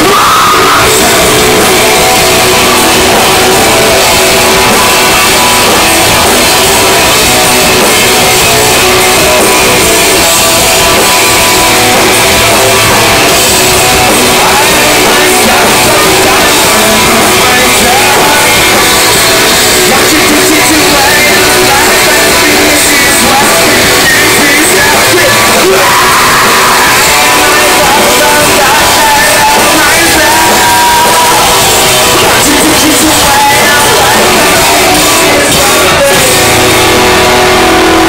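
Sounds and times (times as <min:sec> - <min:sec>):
distorted live rock band: 0:00.0 - 0:38.0.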